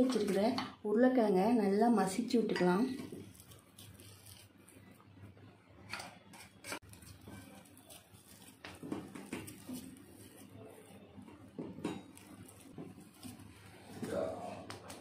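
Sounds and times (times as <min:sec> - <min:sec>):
potato being mashed by hand: 0:03.0 - 0:04.8, 0:06.3 - 0:15.0.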